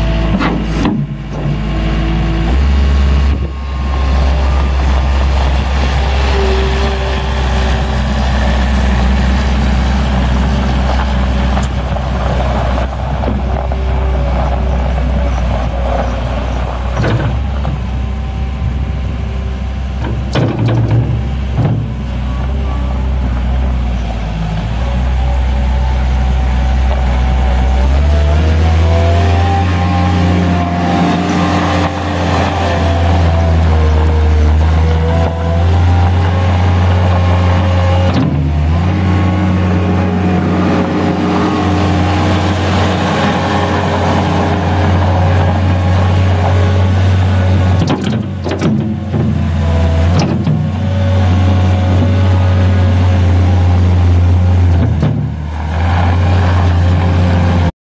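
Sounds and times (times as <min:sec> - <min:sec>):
skid steer engine revving: 0:00.0 - 0:57.7.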